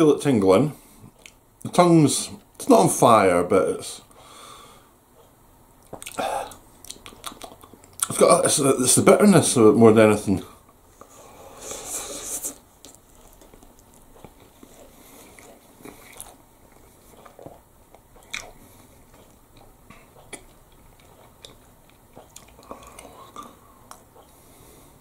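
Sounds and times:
person chewing noodles: 5.8s - 8.1s, 11.0s - 24.6s.

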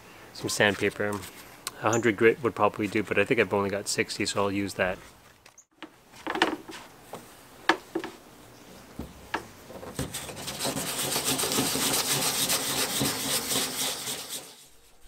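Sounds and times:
sandpaper scratching: 10.0s - 15.0s.

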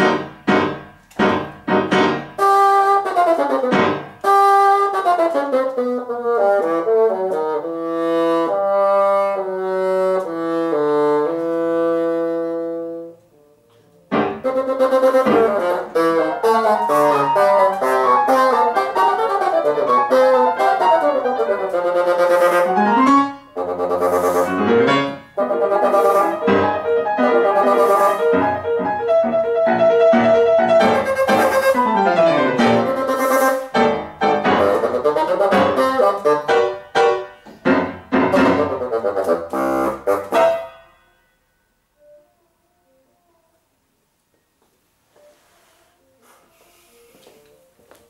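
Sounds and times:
sharp piano chords: 0.0s - 4.8s, 13.4s - 42.2s
bassoon playing fast runs: 0.0s - 13.2s, 14.1s - 40.8s.

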